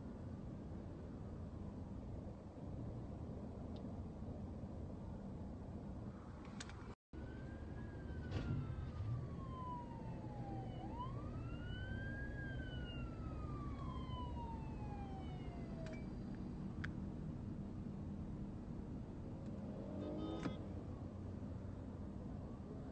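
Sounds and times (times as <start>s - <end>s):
low rumble of traffic: 0.0s - 22.9s
police siren wailing: 7.2s - 16.3s.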